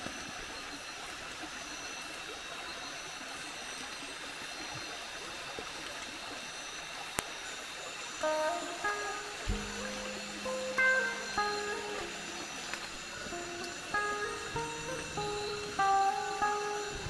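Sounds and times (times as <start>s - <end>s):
insects droning: 0.0s - 17.0s
steady hiss: 7.3s - 17.0s.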